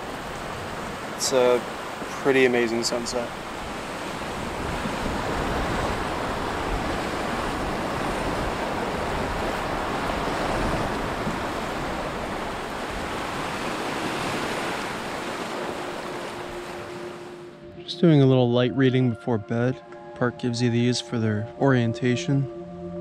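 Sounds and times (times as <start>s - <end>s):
waves washing against rocks: 0.0s - 16.8s
wind: 0.0s - 23.0s.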